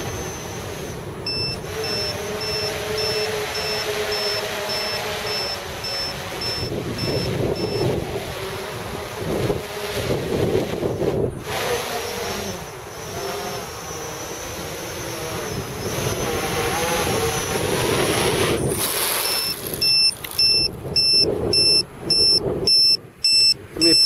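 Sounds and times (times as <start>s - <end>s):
quadcopter propellers whirring: 0.0s - 24.0s
rapid electronic beeping: 1.3s - 7.9s, 19.2s - 24.0s.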